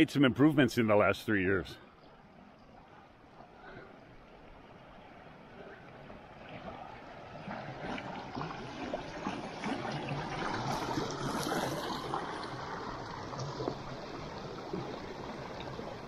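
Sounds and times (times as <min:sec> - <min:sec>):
stream rushing over stones: 0:06.5 - 0:16.0.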